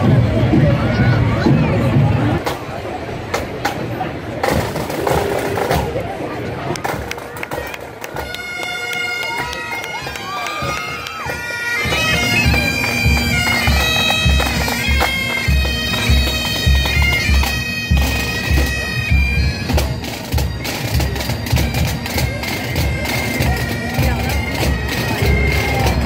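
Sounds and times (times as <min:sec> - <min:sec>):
bagpipes playing a tune: 0:08.1 - 0:26.0.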